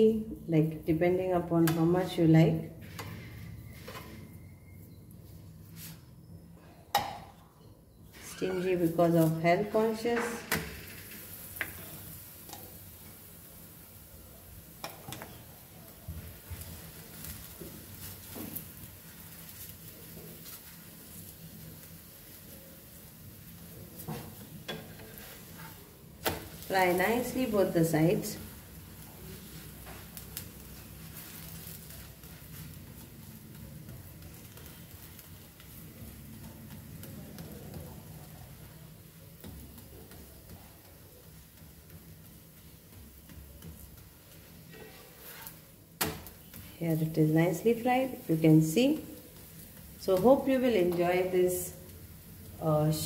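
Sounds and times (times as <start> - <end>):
utensils clicking on griddle: 23.5 - 53.0.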